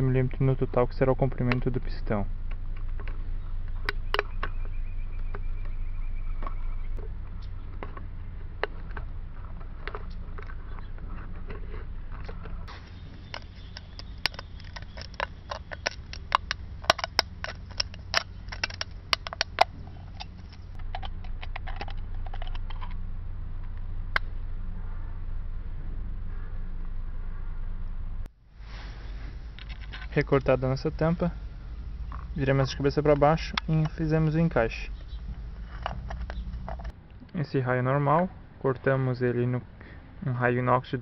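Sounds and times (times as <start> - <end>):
can wall crackling and snapping: 12.2 - 22.9.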